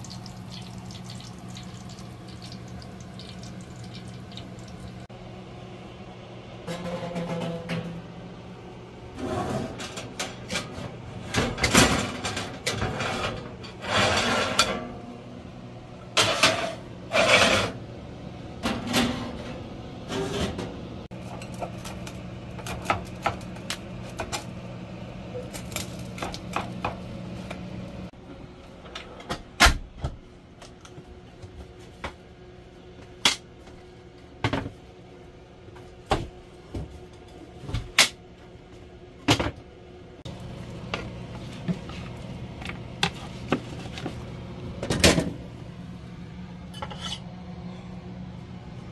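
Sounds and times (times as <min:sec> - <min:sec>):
low steady hum: 0:00.0 - 0:29.4
metal pan scraping and clattering: 0:06.6 - 0:08.0, 0:09.2 - 0:15.0, 0:16.2 - 0:17.8, 0:46.7 - 0:47.3.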